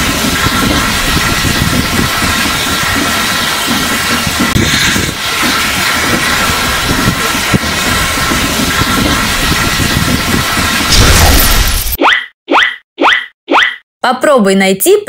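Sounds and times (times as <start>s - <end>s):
train rumble: 0.0s - 11.7s
steam hissing: 0.0s - 12.0s.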